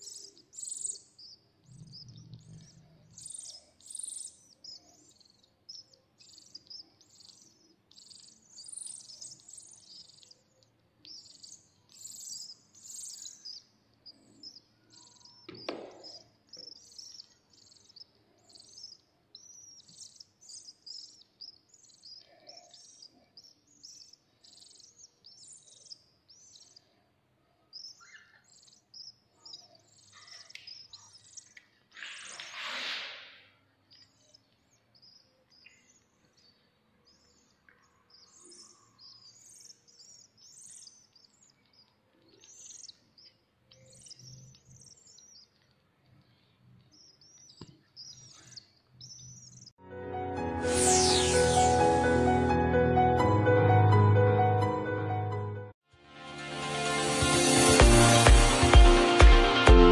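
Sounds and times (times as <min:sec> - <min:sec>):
nestling birds cheeping: 0:00.0 - 0:49.8, 0:50.7 - 0:52.5
knock: 0:15.5 - 0:16.2.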